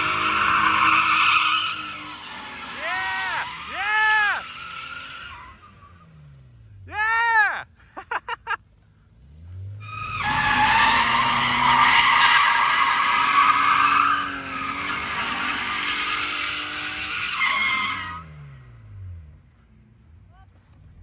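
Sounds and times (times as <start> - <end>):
car engine revving: 0.0 - 6.9, 9.1 - 20.1
tyres squealing: 9.8 - 18.2.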